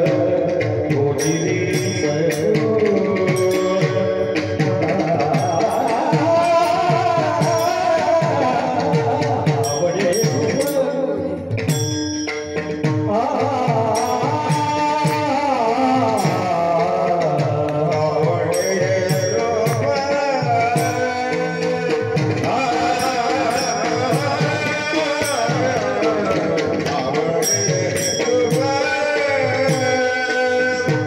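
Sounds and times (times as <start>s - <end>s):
drum beat: 0.0s - 31.0s
man singing into a microphone: 0.0s - 31.0s
small hand cymbals: 17.6s - 31.0s.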